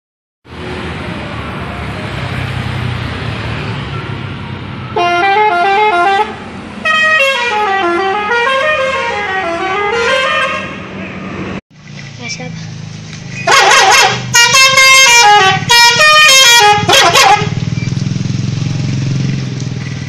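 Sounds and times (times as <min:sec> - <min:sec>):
street traffic: 0:00.4 - 0:20.0
multi-tone musical car horn: 0:04.8 - 0:10.9, 0:13.4 - 0:17.6.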